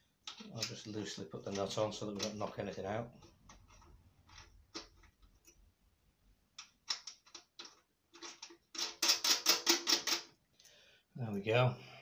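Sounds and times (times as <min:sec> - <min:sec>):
small metallic clicks and taps: 0:01.5 - 0:05.6, 0:06.6 - 0:10.7.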